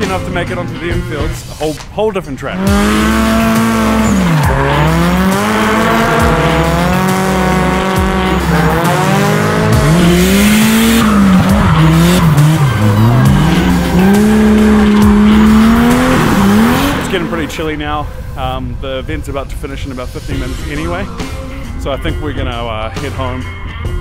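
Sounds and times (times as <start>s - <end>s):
tyres squealing: 1.5s - 17.3s
car engines revving hard: 2.4s - 18.4s.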